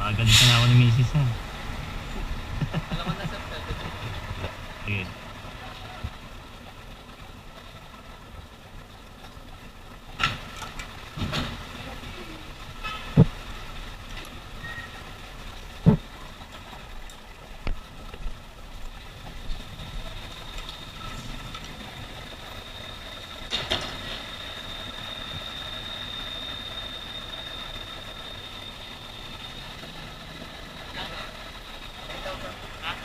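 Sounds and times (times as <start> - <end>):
vehicle engine idling: 0.0 - 33.0
high whine: 10.2 - 33.0.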